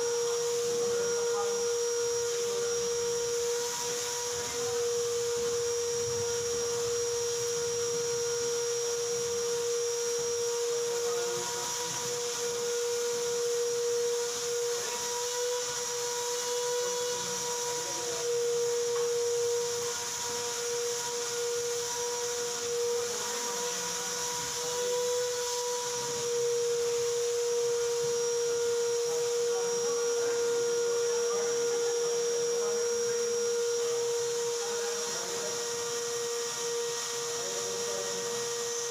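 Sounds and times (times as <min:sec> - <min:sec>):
steady machine whine: 0:00.0 - 0:38.9
hiss: 0:18.9 - 0:30.4.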